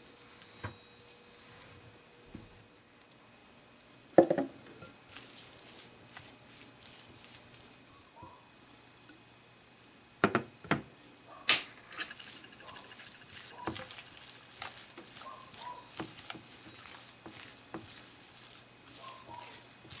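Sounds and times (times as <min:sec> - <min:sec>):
spatula scraping glass bowl: 0:12.0 - 0:20.0.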